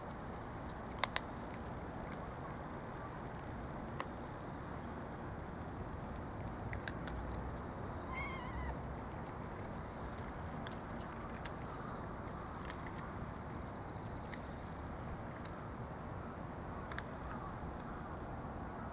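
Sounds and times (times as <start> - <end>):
cat meowing: 8.0 - 8.8.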